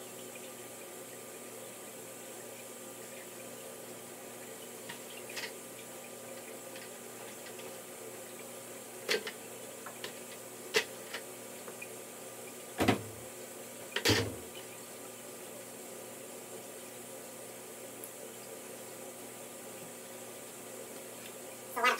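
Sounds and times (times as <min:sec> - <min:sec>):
plastic tube and bucket clattering: 0:14.0 - 0:14.4.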